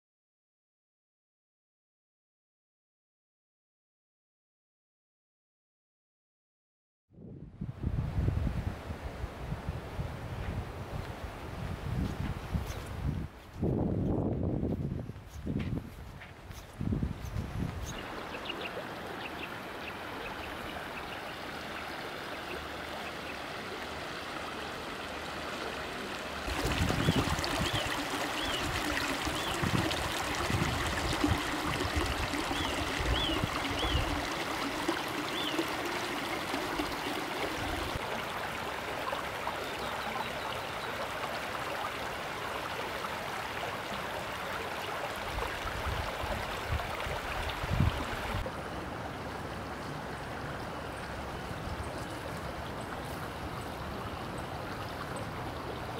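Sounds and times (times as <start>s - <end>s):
mountain stream flowing: 16.0s - 55.9s
small birds chirping: 16.5s - 23.5s, 32.3s - 34.5s, 35.1s - 35.9s.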